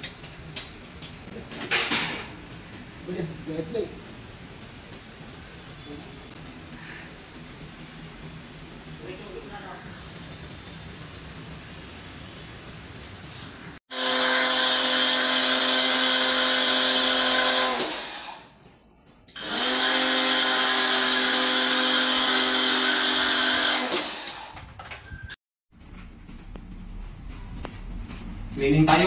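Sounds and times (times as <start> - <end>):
small electric motor running: 13.9 - 18.5, 19.4 - 24.6.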